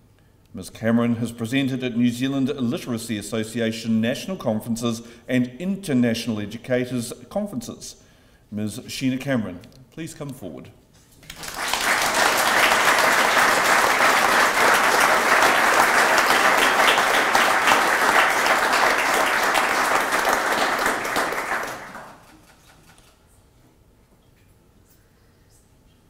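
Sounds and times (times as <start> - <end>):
audience applauding: 11.3 - 23.0.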